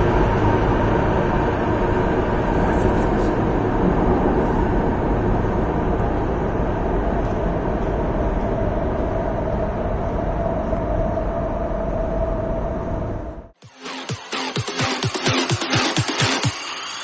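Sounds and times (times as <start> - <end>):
train rumbling in tunnel: 0.0 - 13.6
steady train whine: 0.0 - 14.5.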